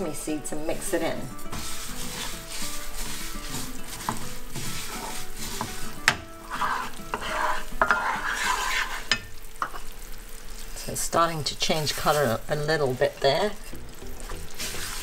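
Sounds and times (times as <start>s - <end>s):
light sizzle: 0.0s - 15.0s
spatula scraping frying pan: 0.6s - 10.0s, 11.6s - 15.0s
spatula knocking against pan: 4.0s - 4.8s, 5.4s - 6.3s.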